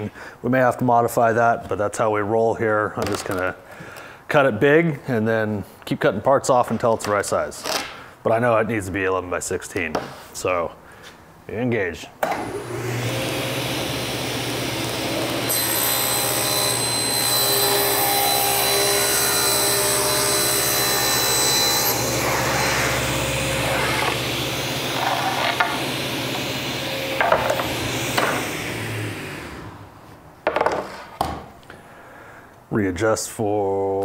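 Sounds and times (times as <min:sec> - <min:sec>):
table saw running: 0:12.3 - 0:29.9
saw blade ripping through board: 0:15.5 - 0:26.5
board knocking: 0:25.0 - 0:25.9, 0:27.2 - 0:28.4, 0:30.4 - 0:31.4.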